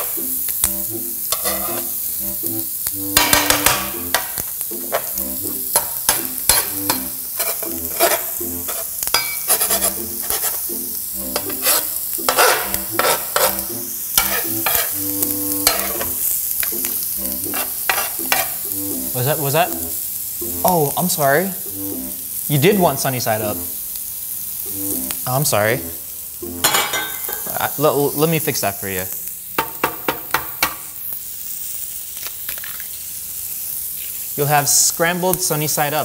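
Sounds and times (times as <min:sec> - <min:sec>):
eggs and sausages sizzling: 0:00.0 - 0:36.0
metal spatula scraping griddle: 0:01.3 - 0:02.0, 0:04.8 - 0:10.7, 0:11.3 - 0:15.0, 0:15.6 - 0:16.2, 0:17.5 - 0:18.6.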